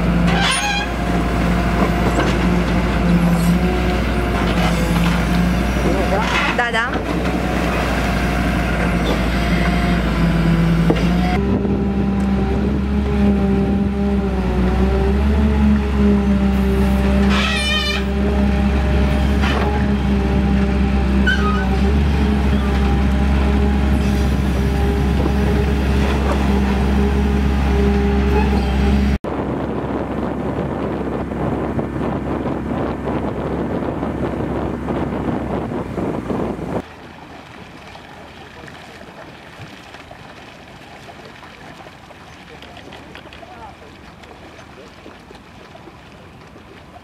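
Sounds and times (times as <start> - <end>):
backhoe digging sediment: 0.0 - 29.2
dredger engine humming: 0.0 - 47.0.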